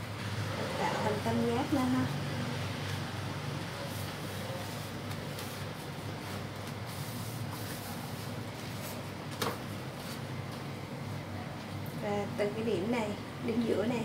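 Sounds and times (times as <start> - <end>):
leaf rustling against metal tray: 2.7 - 10.6.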